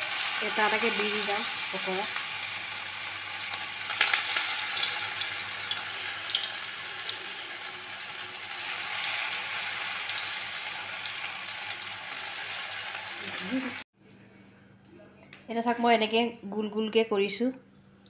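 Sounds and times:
batter deep-frying in hot oil: 0.0s - 13.8s.

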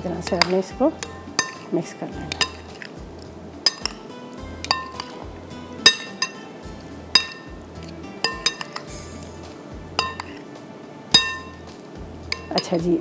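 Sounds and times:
background music: 0.0s - 13.0s
spoon clinking against bowl: 0.2s - 3.0s, 3.6s - 6.5s, 7.1s - 9.0s, 10.0s - 10.5s, 11.1s - 11.7s, 12.3s - 12.8s.

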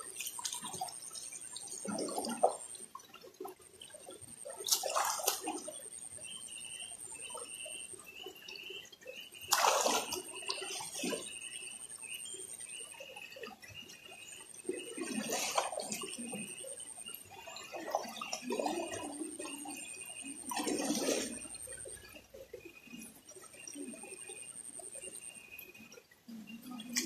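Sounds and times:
flowing water: 0.0s - 27.0s
person splashing in river: 4.7s - 5.5s, 9.5s - 10.2s.

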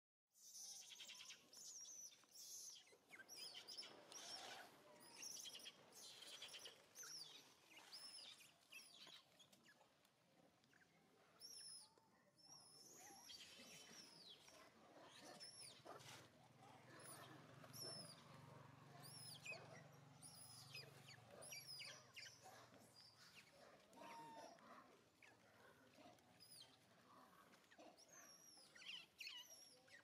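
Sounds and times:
birds chirping and whistling: 0.6s - 9.2s.

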